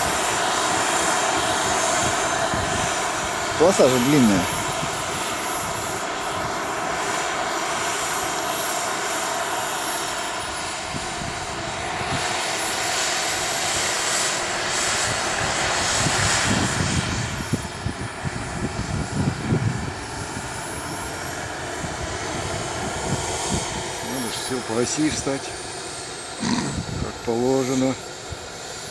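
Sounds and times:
jet turbine running: 0.0 - 28.9
rough low buffeting: 26.4 - 27.3.

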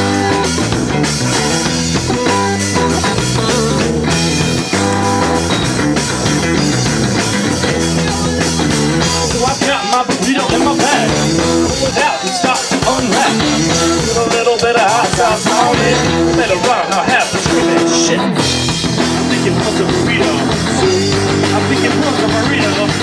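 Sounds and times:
bass guitar: 0.0 - 23.0
bending lead guitar line: 0.0 - 23.0
drum kit: 0.0 - 23.0
electric guitar: 0.0 - 23.0.

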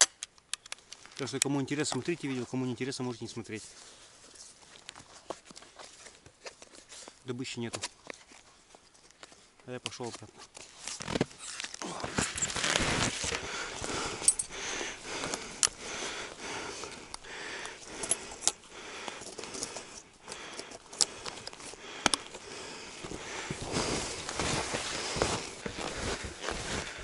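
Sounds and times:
clothing and gloves rustling: 0.8 - 27.0
metallic clicks and jingles: 14.2 - 14.7, 17.9 - 18.6.

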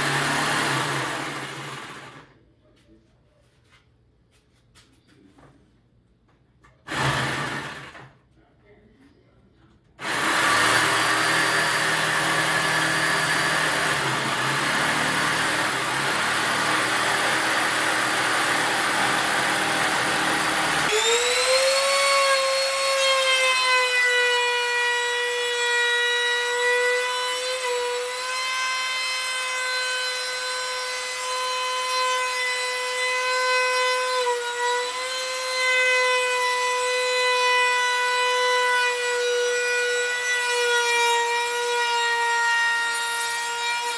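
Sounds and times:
jigsaw cutting plywood: 0.0 - 2.3, 6.8 - 8.1, 10.0 - 43.9
trim router high whine: 0.0 - 2.3, 10.0 - 42.3.

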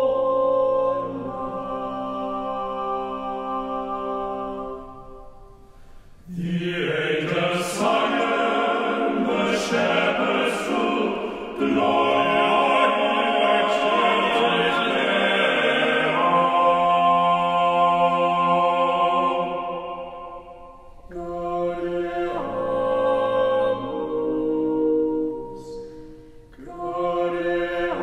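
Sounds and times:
slow choral singing: 0.0 - 28.0.

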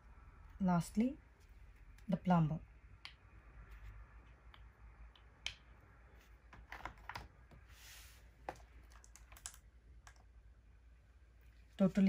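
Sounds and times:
wooden blocks clicking: 8.5 - 10.2.

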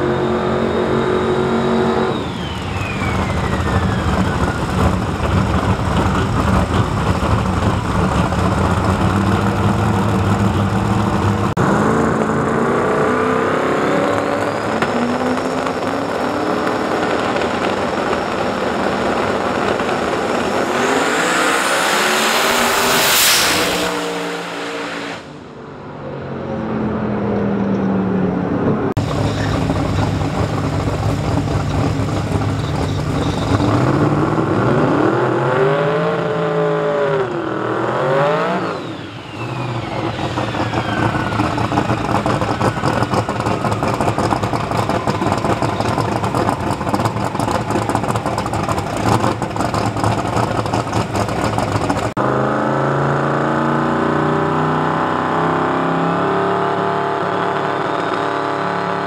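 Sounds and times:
drag car engines revving: 0.0 - 59.0.

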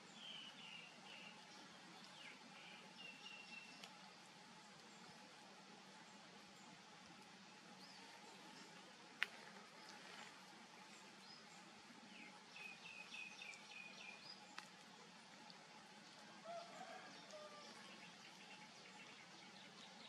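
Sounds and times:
faint outdoor ambience: 0.0 - 20.0
bird chirping: 0.1 - 1.4, 2.0 - 3.8, 10.9 - 14.6.

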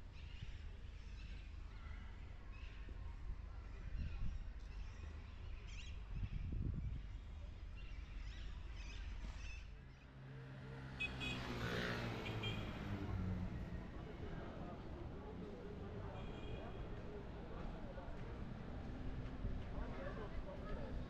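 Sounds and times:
low traffic rumble: 10.5 - 21.0.

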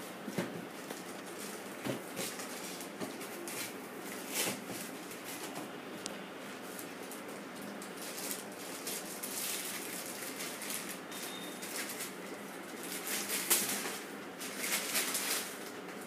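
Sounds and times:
plastic wrapping crinkling: 0.8 - 5.6, 6.6 - 16.0.

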